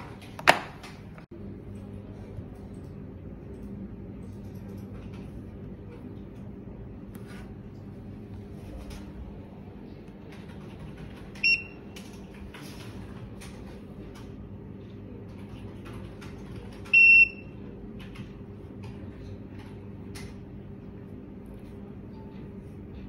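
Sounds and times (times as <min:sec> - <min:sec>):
low steady hum: 0:00.0 - 0:23.0
smart lock beeping: 0:11.4 - 0:11.8, 0:16.9 - 0:17.5.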